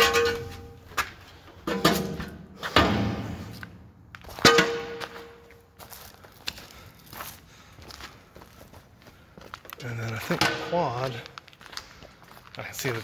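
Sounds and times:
footsteps on metal stairs: 0:00.0 - 0:11.2.

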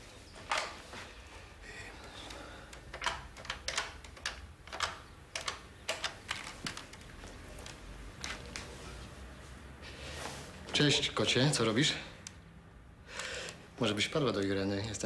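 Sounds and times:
telephone buttons clicking: 0:02.0 - 0:08.7.

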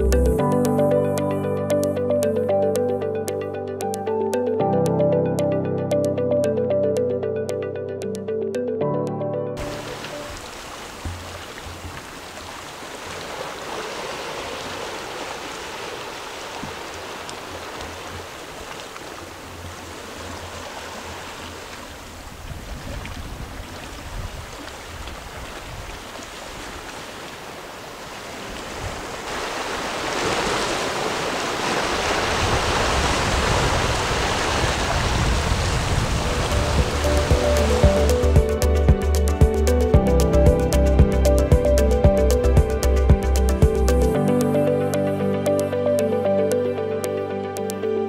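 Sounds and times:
surf washing against rocks: 0:09.6 - 0:38.5.

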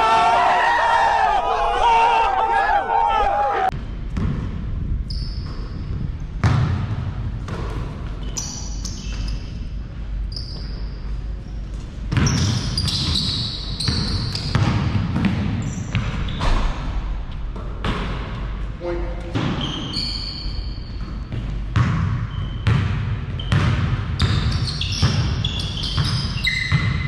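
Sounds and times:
basketball bouncing: 0:04.1 - 0:04.8, 0:05.4 - 0:08.2, 0:12.1 - 0:18.6, 0:20.9 - 0:27.0
sneaker squeaks: 0:05.0 - 0:06.4, 0:08.1 - 0:14.9, 0:15.6 - 0:16.7, 0:18.8 - 0:27.0.

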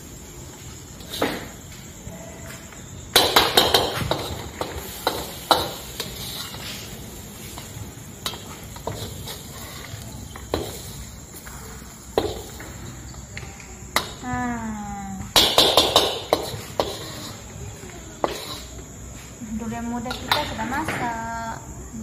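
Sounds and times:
spatula scraping and knocking wok: 0:00.5 - 0:02.1, 0:03.0 - 0:13.3, 0:15.3 - 0:19.3.

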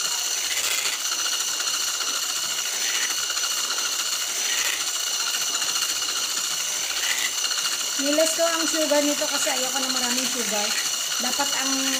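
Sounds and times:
electric hand mixer whining: 0:00.0 - 0:11.9.

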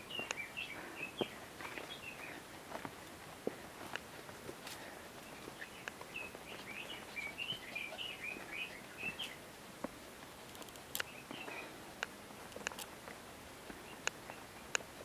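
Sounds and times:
footsteps on a trail: 0:00.0 - 0:15.0
songbird warbling: 0:05.6 - 0:09.4.

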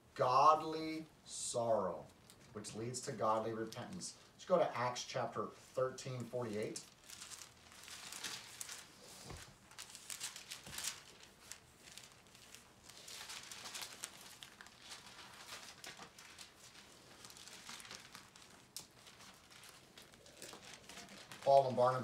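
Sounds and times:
pages rustling and crinkling: 0:06.1 - 0:22.0.

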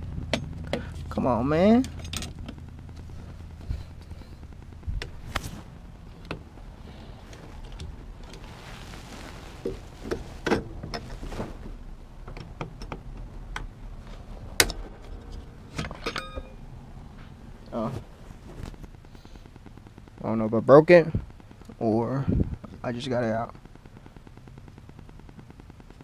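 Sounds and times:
camera rubbing and bumping: 0:02.3 - 0:06.1, 0:07.2 - 0:11.8, 0:17.3 - 0:20.0.

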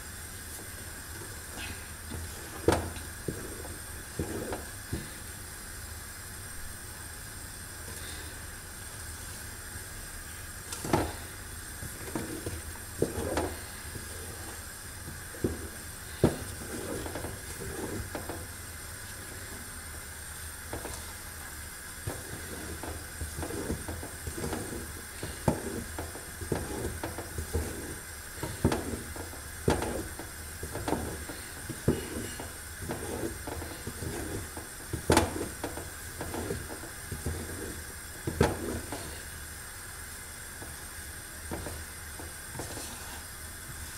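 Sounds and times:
wooden spoon scraping a pot: 0:01.6 - 0:05.2, 0:10.8 - 0:18.6, 0:22.1 - 0:39.3.

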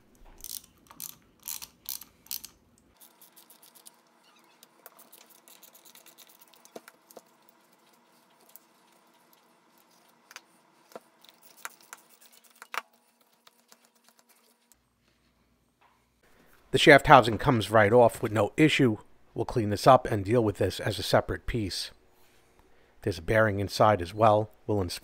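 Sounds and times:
sharp metal clicks: 0:00.1 - 0:02.6
hand ratchet clicking: 0:00.4 - 0:02.6.

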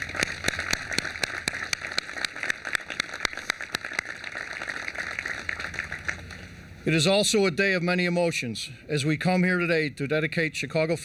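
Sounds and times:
sharp single claps: 0:00.0 - 0:04.7
crowd applauding: 0:00.0 - 0:06.5.

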